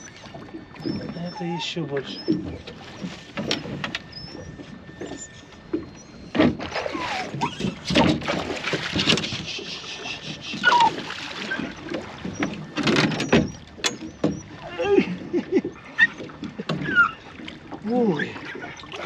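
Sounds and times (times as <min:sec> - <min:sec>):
water splashing: 0:00.0 - 0:19.0
sharp knocks on boat: 0:02.3 - 0:04.1, 0:05.0 - 0:09.5, 0:10.3 - 0:14.5, 0:16.2 - 0:17.1
short squeaky chirps: 0:03.4 - 0:07.8, 0:09.3 - 0:14.5.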